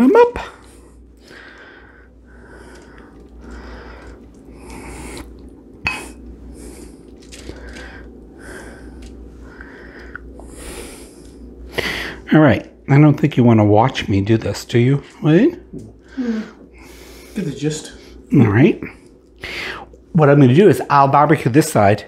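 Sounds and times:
wet swishing sauce strokes: 2.3 - 5.6.

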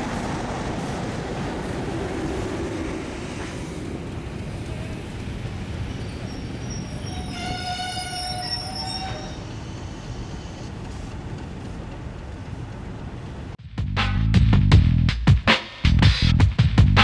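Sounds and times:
train rumbling on rails: 0.0 - 13.6
train whistle: 7.0 - 9.4.

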